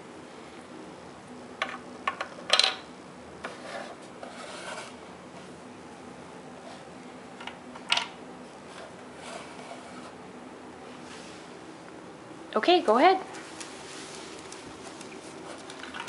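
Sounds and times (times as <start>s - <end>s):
toy shifting on tile floor: 14.3s - 16.0s.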